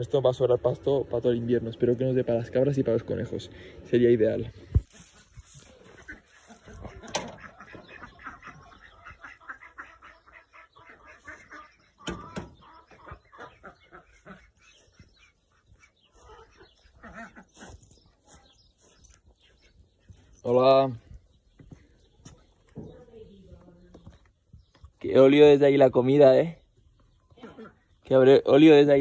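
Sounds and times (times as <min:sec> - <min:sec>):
footsteps on grass: 0:04.8 - 0:07.0, 0:12.8 - 0:28.2
poultry clucking: 0:05.5 - 0:29.0.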